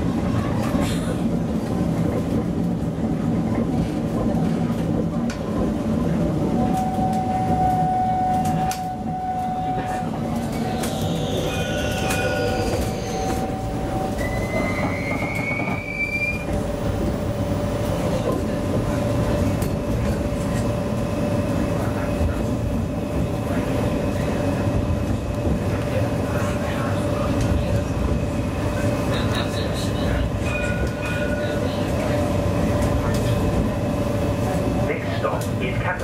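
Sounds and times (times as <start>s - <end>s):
tram running rumble: 0.0s - 36.0s
wheels squealing: 9.5s - 16.6s.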